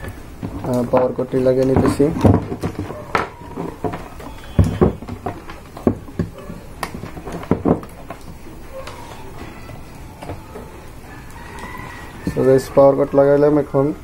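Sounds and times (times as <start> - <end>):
knocks and clicks of handled cables: 0.0 - 9.0.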